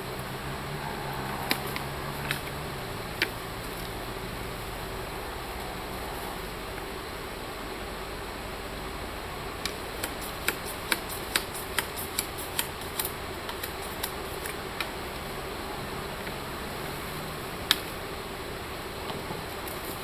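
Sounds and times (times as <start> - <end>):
bamboo pole clicks and snaps: 9.6 - 14.9, 17.7 - 17.9.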